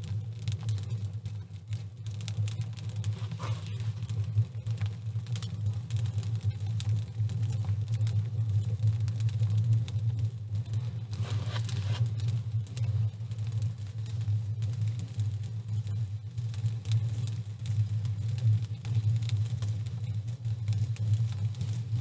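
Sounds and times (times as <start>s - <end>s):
low hum: 2.5s - 5.5s
hands crumbling dry soil: 11.1s - 12.1s.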